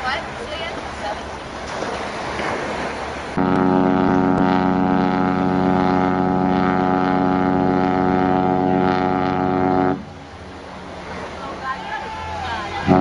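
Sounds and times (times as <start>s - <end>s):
ship horn blast: 3.3s - 10.9s, 12.5s - 13.0s.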